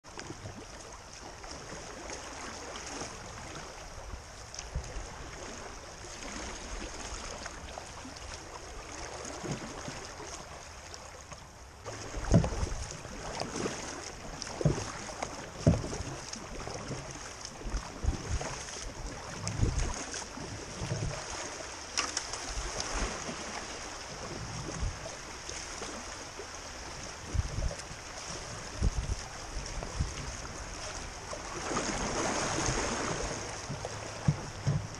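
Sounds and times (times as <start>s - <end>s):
paddle strokes and splashes: 0.0s - 34.9s
creek water rushing: 0.1s - 34.9s
thumps against canoe hull: 11.9s - 13.5s, 14.4s - 17.0s, 32.4s - 34.9s.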